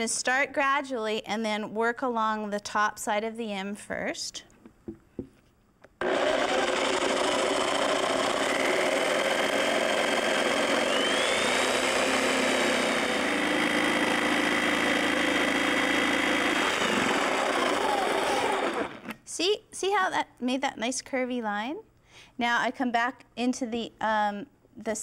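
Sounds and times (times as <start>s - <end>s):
jigsaw cutting wood: 6.0s - 19.2s.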